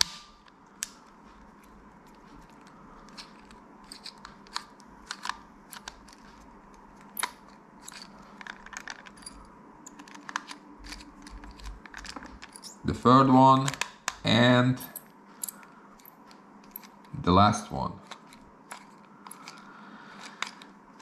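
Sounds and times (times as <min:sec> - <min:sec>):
screwdriver clicks and scrapes: 0:01.6 - 0:06.2, 0:07.0 - 0:12.8, 0:18.0 - 0:19.6, 0:20.2 - 0:20.7.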